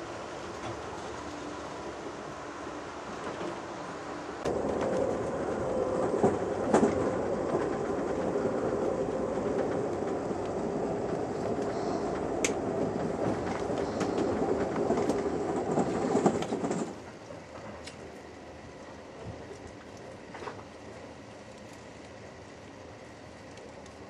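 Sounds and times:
train wheels rumbling on track: 0.0 - 19.5
sharp rail clicks: 4.5 - 17.0.

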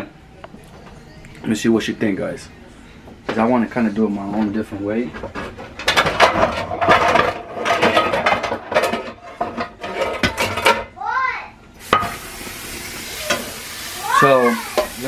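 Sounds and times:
dishes and pans clinking: 4.3 - 10.9, 11.9 - 12.2, 13.2 - 13.6, 14.6 - 15.0.

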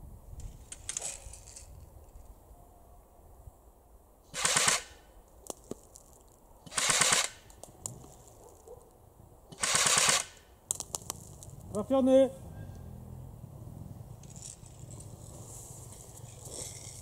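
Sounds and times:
airsoft gun full-auto bursts: 4.3 - 5.0, 6.7 - 7.5, 9.5 - 10.4.

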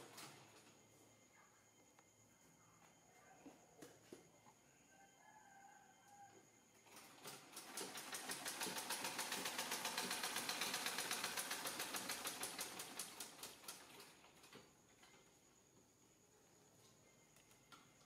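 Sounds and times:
sewing machine clatter: 6.9 - 15.2.

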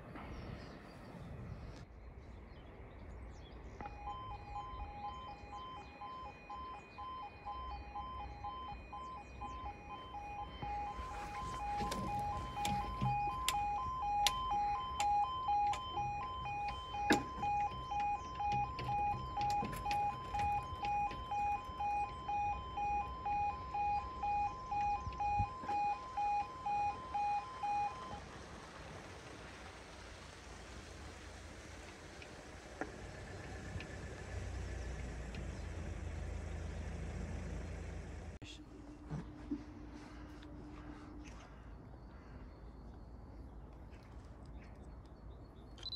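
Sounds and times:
two-tone crossing alarm beeping: 3.8 - 28.2.

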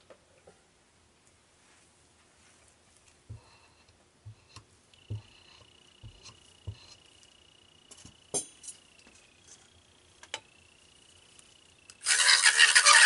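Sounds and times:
faint high whine: 1.2 - 13.0
mini mixer whirring: 12.0 - 13.0.

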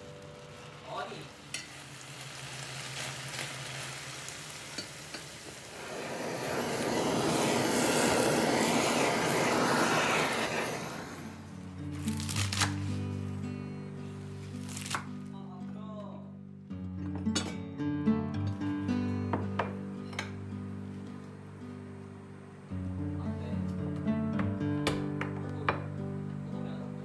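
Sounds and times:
blowtorch flame hissing: 0.0 - 15.1
soft background music: 11.5 - 27.0.

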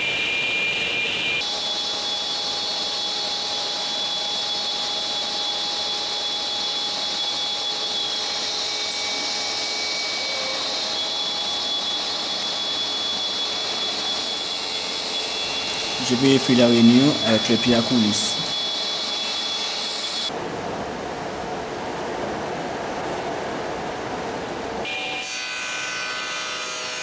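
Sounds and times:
woodworking machine whining: 0.0 - 20.3.

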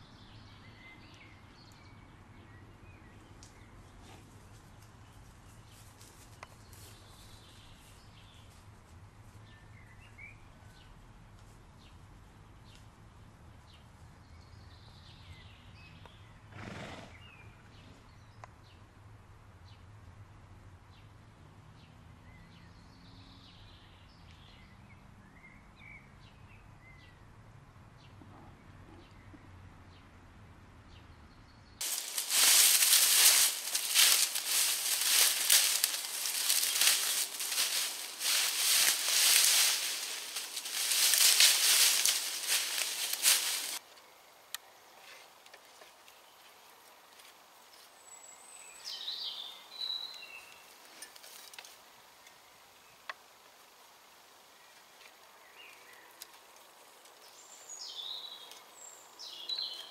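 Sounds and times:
footsteps crunching through dry leaves: 31.8 - 43.8.

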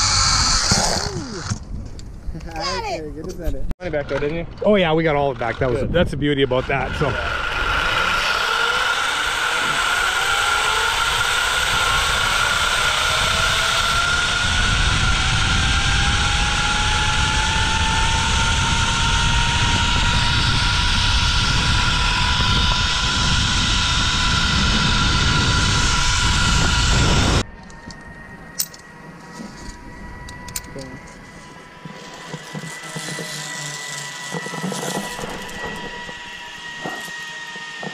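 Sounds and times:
zip line pulley whine: 0.0 - 1.7, 4.9 - 37.9
wind buffeting microphone: 4.4 - 8.3, 10.9 - 28.5.

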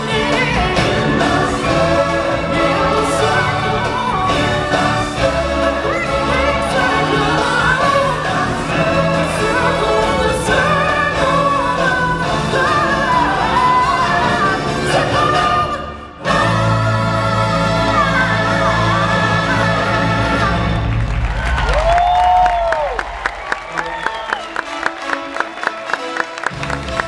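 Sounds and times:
choir singing over backing track: 0.0 - 21.1.

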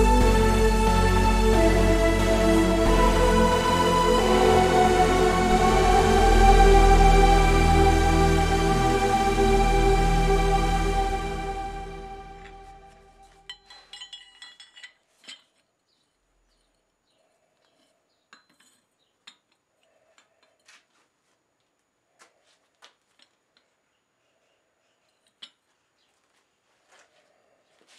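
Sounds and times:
steel clinking on steel: 13.5 - 15.6.

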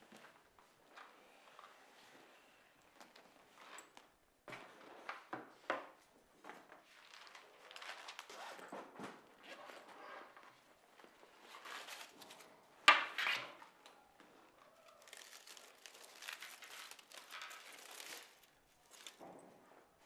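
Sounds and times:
aluminium foil crinkling: 14.8 - 19.2.

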